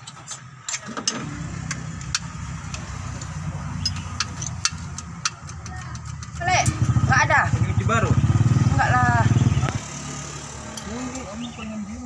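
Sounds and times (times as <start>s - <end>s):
diesel engine running: 0.0s - 12.0s
sharp ticks: 1.6s - 6.9s.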